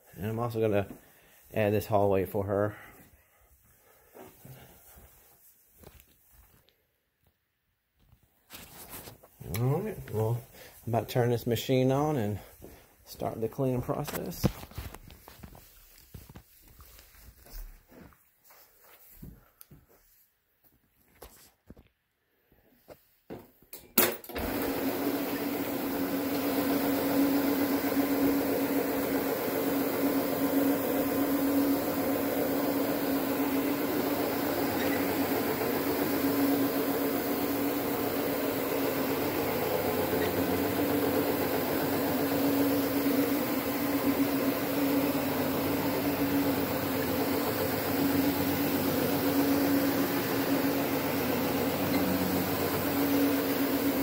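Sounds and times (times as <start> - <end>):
carpet scrubbing machine running: 24.3 - 54.0.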